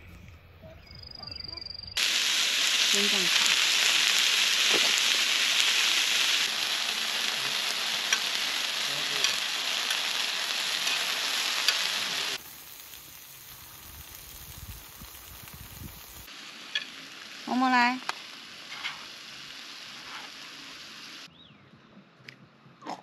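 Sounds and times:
food sizzling in a hot pan: 2.0 - 21.3
fat spitting pops: 4.7 - 5.0.

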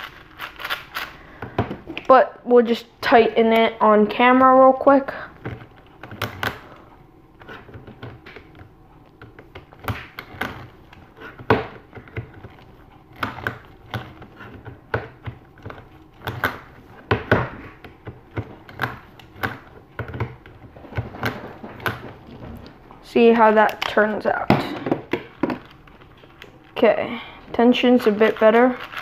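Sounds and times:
puzzle cube layers turning: 0.0 - 1.2, 27.8 - 29.0
plastic clicks and knocks: 23.7 - 25.8.

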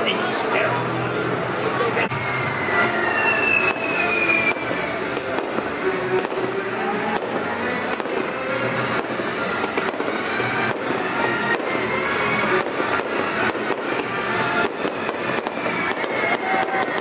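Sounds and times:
music: 0.0 - 17.0
fireworks bursting and crackling: 2.1 - 17.0.

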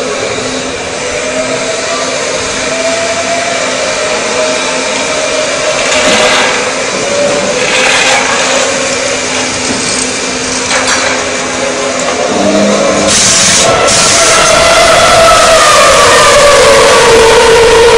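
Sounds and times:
air blowers whirring: 0.0 - 17.9
steady hum: 0.0 - 17.9
surges of rushing air: 12.3 - 17.3.

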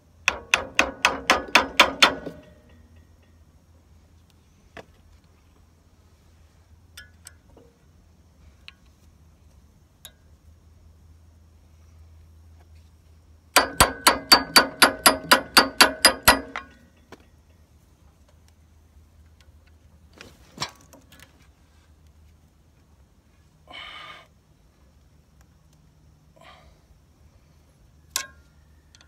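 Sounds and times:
hammer striking metal screwdriver: 13.6 - 16.8.

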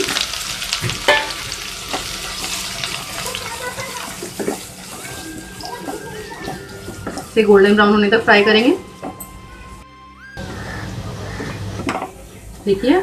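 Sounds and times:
onions sizzling in oil: 0.0 - 9.1.

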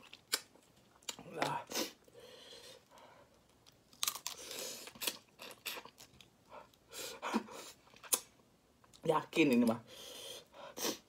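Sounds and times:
shells crunching and tearing: 3.6 - 6.1.

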